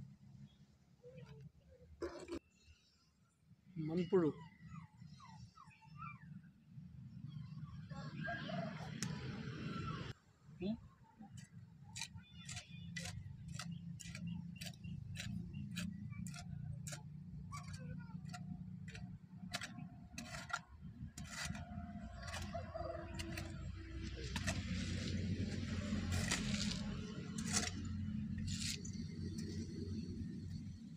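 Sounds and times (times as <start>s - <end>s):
hoe chopping and scraping soil: 11.4s - 29.9s.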